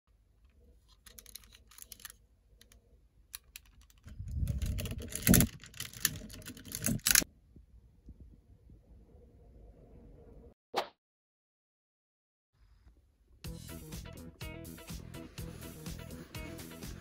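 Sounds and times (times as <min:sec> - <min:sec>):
plastic toy parts clicking and rattling: 0:00.4 - 0:07.3.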